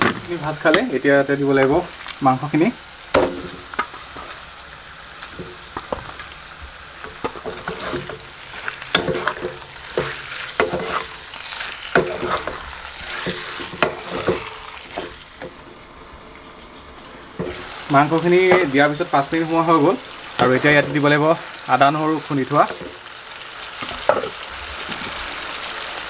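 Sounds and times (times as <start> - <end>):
chicken sizzling in hot oil: 0.0 - 26.0
wooden spatula scraping pan: 7.0 - 15.7, 17.4 - 21.3, 22.0 - 23.0.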